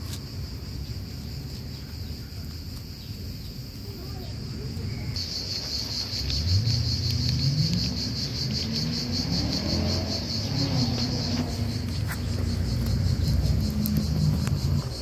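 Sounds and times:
insect trilling: 0:00.0 - 0:15.0
passing vehicle engine hum: 0:05.6 - 0:15.0.

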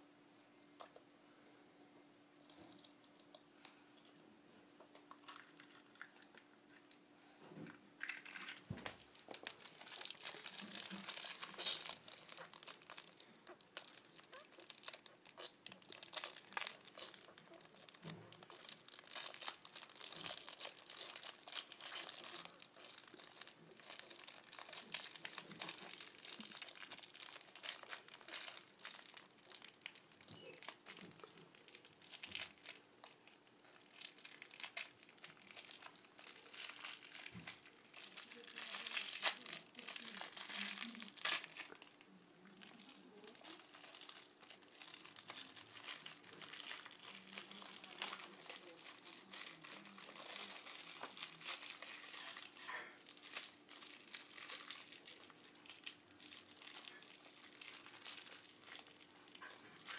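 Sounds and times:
plastic wrapper crinkling: 0:02.4 - 0:04.1, 0:04.9 - 0:07.0, 0:07.6 - 0:59.9.

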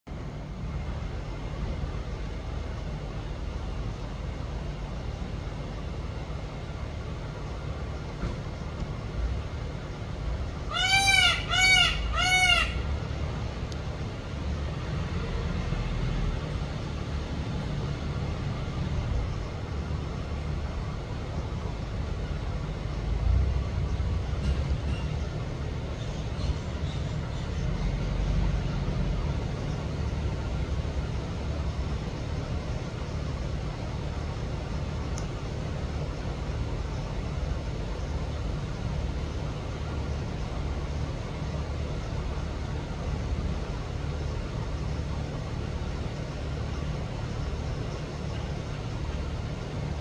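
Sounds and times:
steady low rumble: 0:00.1 - 0:50.0
peacock calls: 0:10.4 - 0:13.1.

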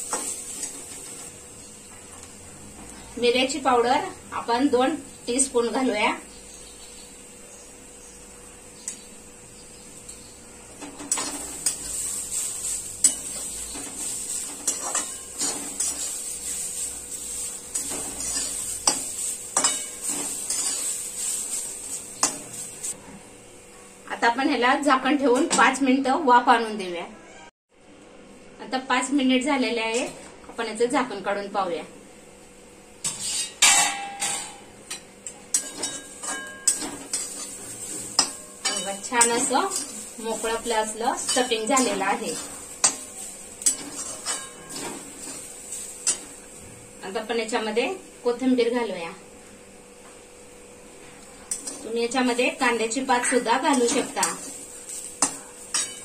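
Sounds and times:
vegetables sizzling in oil: 0:00.0 - 0:23.0, 0:34.9 - 0:56.0
metal spatula scraping a pan: 0:10.8 - 0:23.0, 0:33.0 - 0:34.6, 0:35.5 - 0:46.4, 0:51.5 - 0:52.5, 0:53.1 - 0:56.0.

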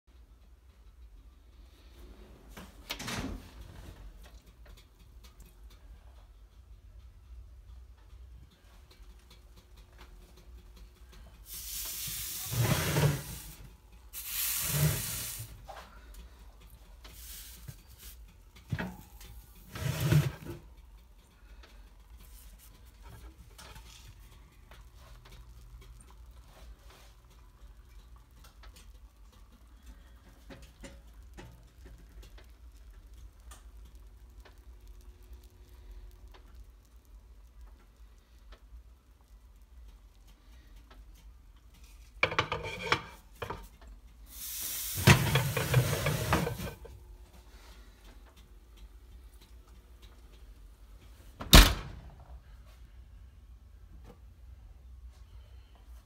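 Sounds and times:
roast sizzling in oven: 0:07.9 - 0:51.6.

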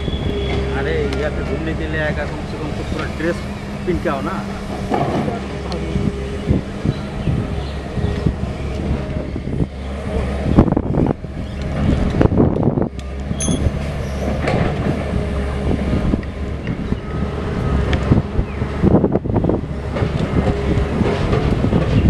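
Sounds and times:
diesel engine hum: 0:00.0 - 0:22.0
short high-pitched beep: 0:13.4 - 0:13.7
metallic clanks and knocks: 0:13.4 - 0:13.8.

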